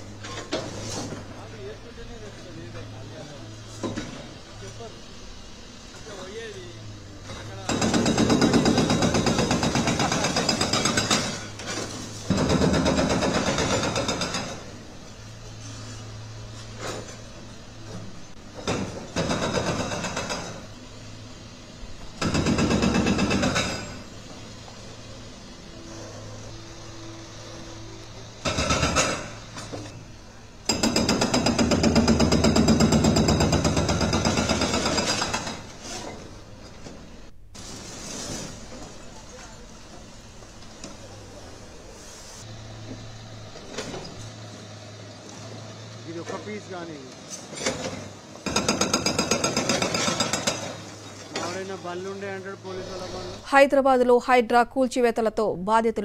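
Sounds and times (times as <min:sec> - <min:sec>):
hydraulic breaker hammering concrete: 0:07.2 - 0:11.6, 0:12.3 - 0:14.8, 0:18.6 - 0:20.7, 0:22.1 - 0:24.2, 0:28.4 - 0:29.8, 0:30.6 - 0:35.7, 0:47.6 - 0:51.6
mechanical hammering on concrete: 0:30.6 - 0:35.6.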